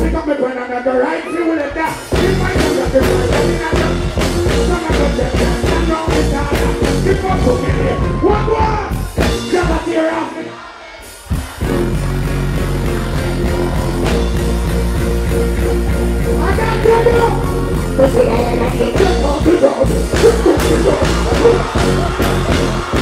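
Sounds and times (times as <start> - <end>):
bass-driven reggae beat: 0.0 - 0.4, 1.6 - 23.0
person singing on microphone: 1.8 - 10.6, 18.0 - 22.3.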